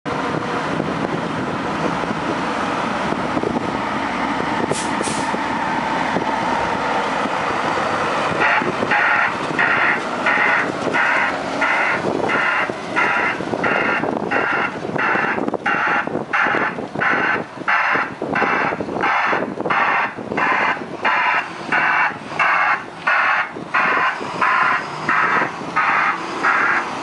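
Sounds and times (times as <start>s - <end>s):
diesel engine running: 0.1s - 27.0s
reversing alarm beeping: 7.7s - 26.8s.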